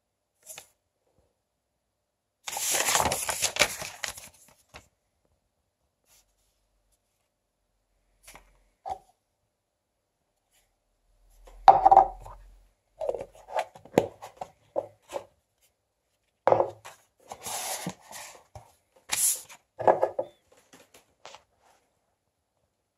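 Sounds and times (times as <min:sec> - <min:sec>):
plastic cup knocking on table: 0:11.7 - 0:12.2, 0:16.5 - 0:16.8.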